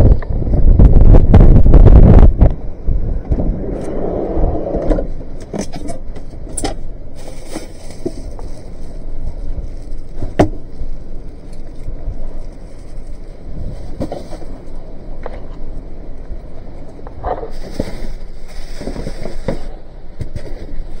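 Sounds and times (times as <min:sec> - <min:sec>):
wind buffeting microphone: 0:00.0 - 0:21.0
fishing gear rustling: 0:06.8 - 0:14.9.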